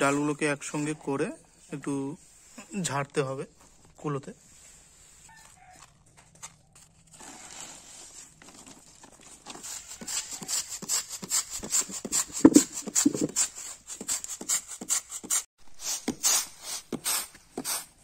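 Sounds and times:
grains rattling on bamboo tray: 12.3s - 13.4s.

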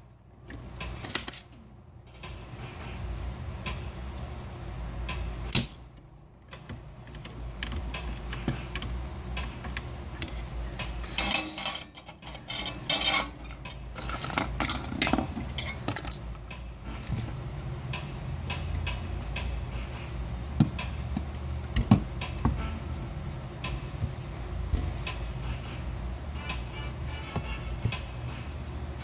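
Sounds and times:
steady low hum: 0.0s - 29.0s
clicks and clinks of tools: 1.0s - 1.5s, 11.0s - 16.3s
desoldering pump snapping: 5.5s - 16.4s.

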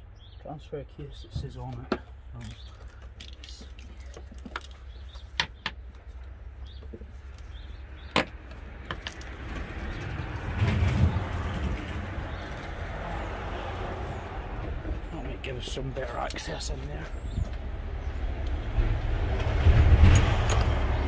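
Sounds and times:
rumbling noise: 8.6s - 21.0s.

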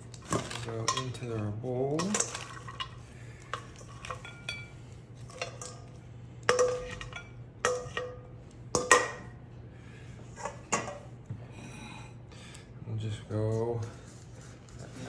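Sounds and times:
tongs and bowl clinking on plate: 0.2s - 9.3s
steel bowl ringing: 2.0s - 5.9s, 6.5s - 9.3s.

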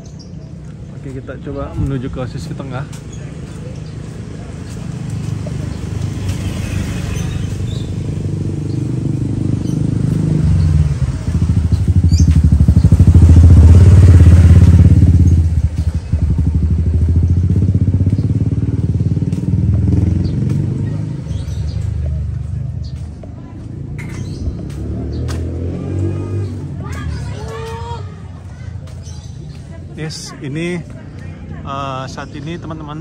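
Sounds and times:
motorcycle engine running: 3.4s - 26.9s.

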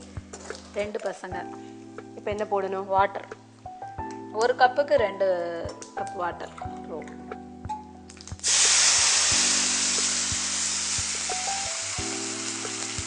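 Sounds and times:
loud sizzling hiss of hot oil: 8.4s - 13.0s.

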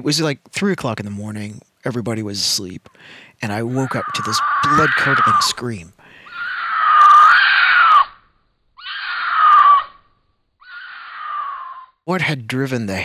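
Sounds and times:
mountain lion screaming: 3.5s - 8.2s, 8.8s - 12.0s.

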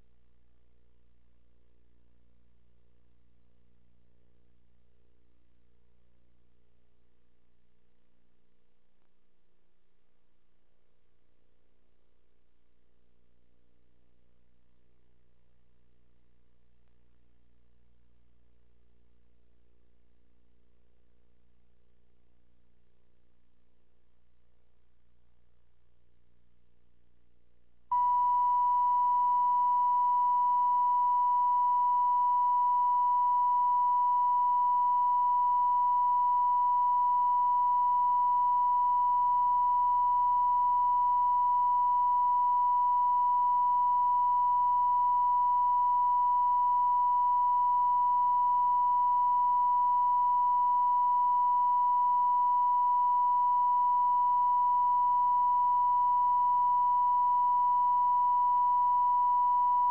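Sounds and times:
steady electronic test tone: 27.9s - 59.9s.

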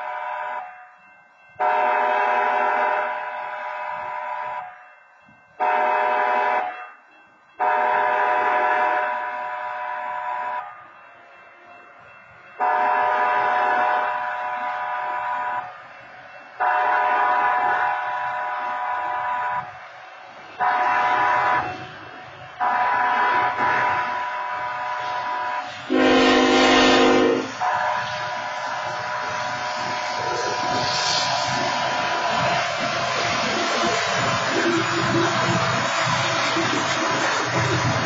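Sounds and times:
train horn blasts: 0.0s - 0.8s, 1.6s - 4.8s, 5.6s - 6.9s, 7.6s - 10.8s, 12.6s - 15.8s, 16.6s - 19.8s, 20.6s - 21.9s, 22.6s - 31.0s.

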